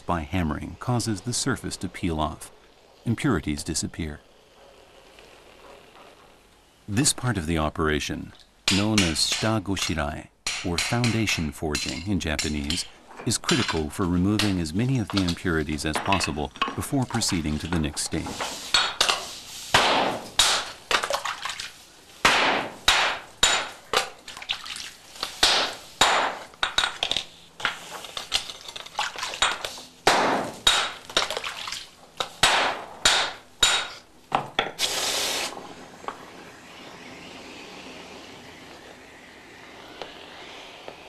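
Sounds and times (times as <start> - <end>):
hammers striking steel on anvil: 8.7 - 12.9, 22.2 - 23.8, 25.4 - 27.0, 29.4 - 31.0, 32.4 - 34.0
steam hiss: 17.4 - 20.9, 33.9 - 41.0.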